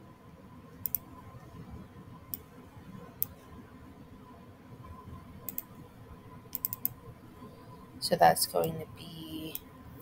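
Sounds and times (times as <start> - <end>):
faint background hiss: 0.0 - 10.0
thin steady hum: 0.0 - 10.0
computer mouse button clicks: 0.8 - 1.0, 6.5 - 6.9.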